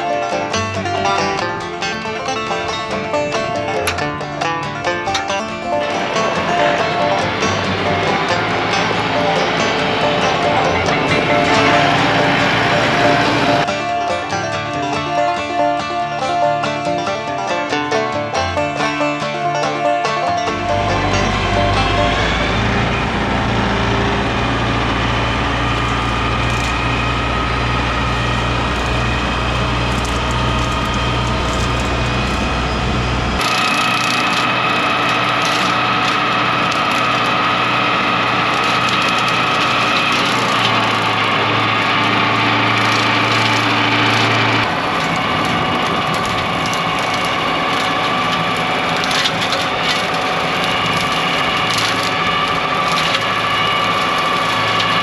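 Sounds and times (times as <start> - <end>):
tractor diesel engine under load: 0.0 - 55.0
brush cutter blades spinning: 5.1 - 13.7, 20.5 - 55.0
stems snapping: 25.3 - 32.6, 33.4 - 55.0.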